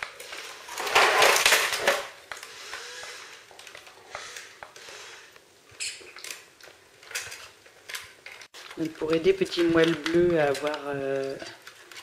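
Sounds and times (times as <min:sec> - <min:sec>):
puppy claws clicking on plastic: 0:07.1 - 0:12.0.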